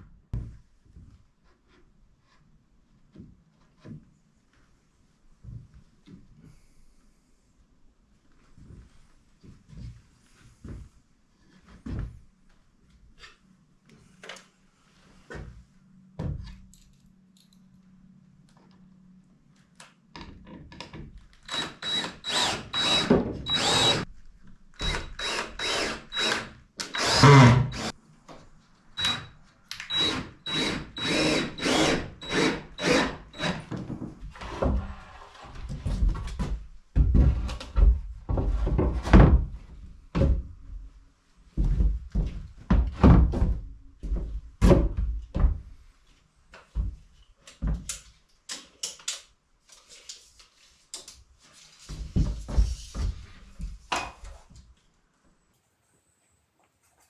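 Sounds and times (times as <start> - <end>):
cordless drill whining into wood: 21.4 - 24.0, 24.8 - 27.9, 29.8 - 33.6.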